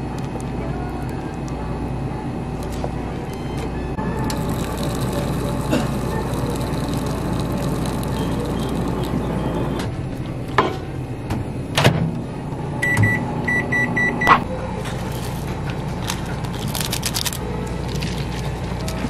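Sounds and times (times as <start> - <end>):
microwave keypad beeping: 12.8 - 14.4.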